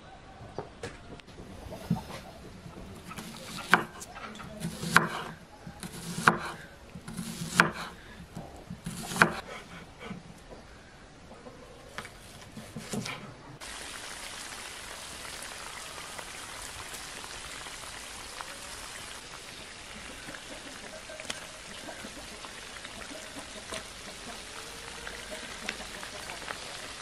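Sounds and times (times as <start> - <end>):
knife slicing onion on board: 3.0 - 8.0, 8.7 - 10.2, 12.5 - 13.2
meat sizzling in pan: 13.6 - 19.8.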